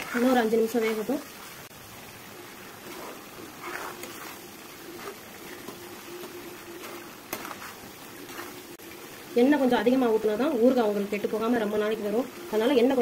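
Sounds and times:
mango sizzling in oil: 0.0s - 13.0s
steel ladle scraping a pan: 2.8s - 5.8s.

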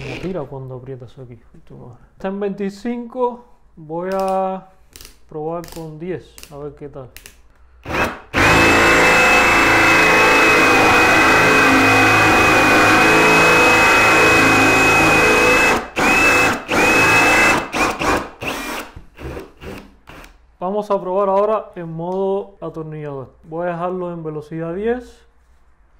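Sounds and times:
cordless drill whining: 7.8s - 20.3s.

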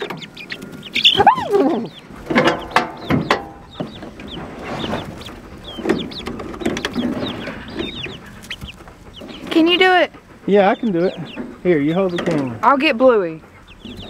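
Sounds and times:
young chickens cheeping and squawking: 0.0s - 14.0s
clicks and rattles from wire tub: 2.3s - 3.6s.

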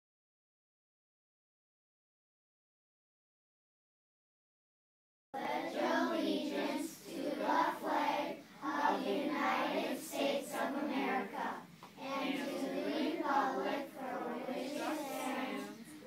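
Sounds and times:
children speaking in unison: 5.4s - 16.0s.

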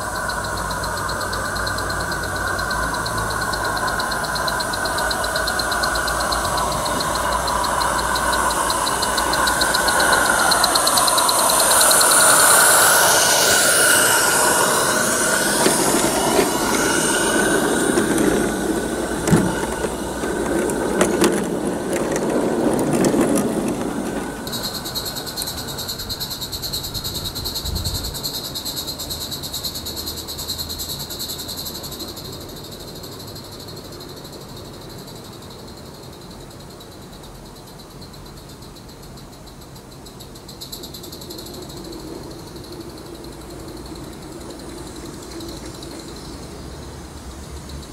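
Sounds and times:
steam locomotive chuffing: 0.0s - 35.3s
wheels clicking on track: 0.0s - 35.8s, 40.1s - 47.9s
steady high hiss: 0.0s - 47.9s.

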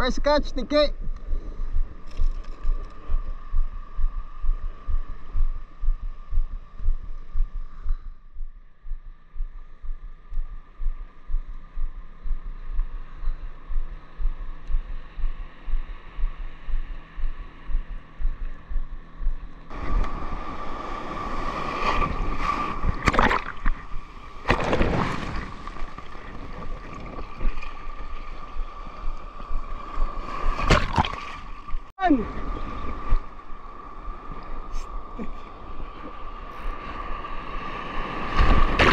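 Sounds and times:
rush of water: 19.7s - 38.9s
big splashes: 19.8s - 28.7s, 30.0s - 31.9s, 38.2s - 38.9s
sea water sloshing around legs: 19.8s - 31.9s.

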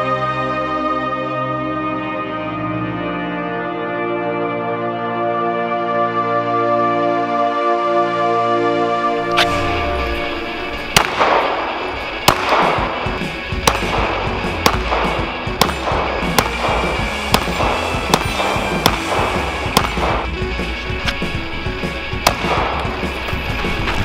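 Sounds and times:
background music: 0.0s - 24.0s
pistol shots: 9.3s - 20.3s, 22.2s - 23.1s.

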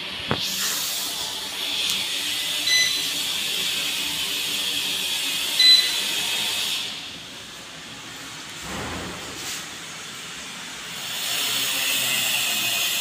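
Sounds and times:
touch panel beeps: 2.7s - 3.1s, 5.6s - 6.0s.

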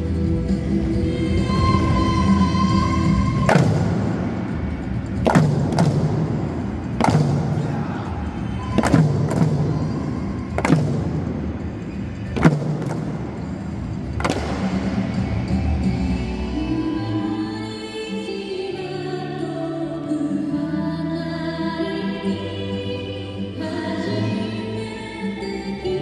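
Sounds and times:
background music: 0.0s - 26.0s.

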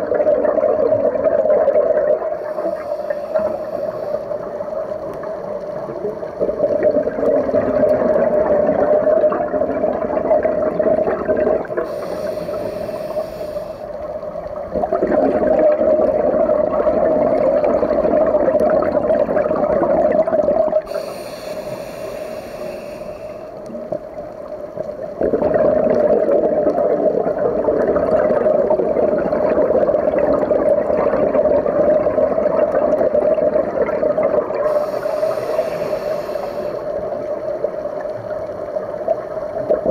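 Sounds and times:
scuba regulator hiss and bubbles: 2.0s - 5.3s, 10.7s - 18.7s, 19.8s - 27.4s, 34.2s - 38.6s
steady hum: 2.2s - 8.8s, 9.6s - 18.3s, 20.7s - 25.9s, 34.5s - 37.6s.

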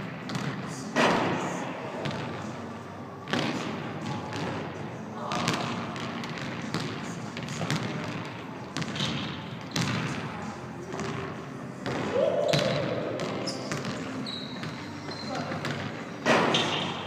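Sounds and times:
voices echoing in gym: 0.0s - 17.0s
basketball bouncing on hardwood floor: 5.4s - 8.2s, 8.8s - 10.1s.

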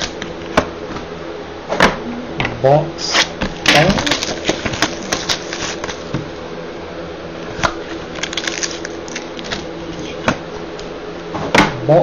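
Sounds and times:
plastic wrap and cardboard crinkling: 3.1s - 6.2s, 7.8s - 10.3s.

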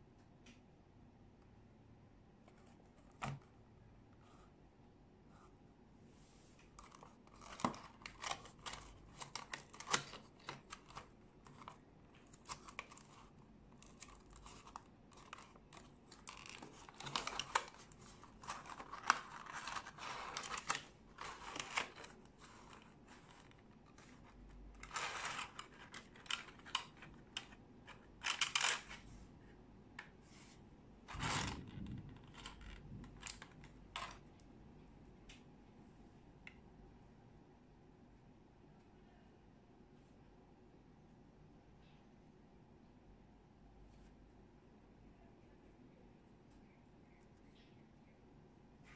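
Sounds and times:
cardboard and plastic rustling: 6.6s - 29.1s, 30.3s - 34.2s.

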